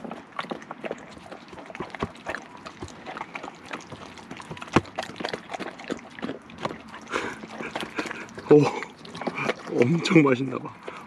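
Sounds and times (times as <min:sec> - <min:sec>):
dog chewing and lip-smacking: 0:00.0 - 0:11.0.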